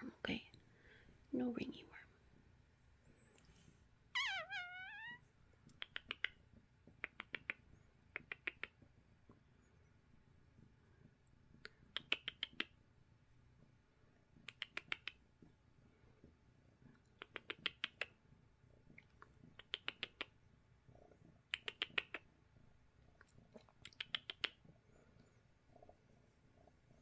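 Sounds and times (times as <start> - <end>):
cat chirping: 4.1 - 6.4.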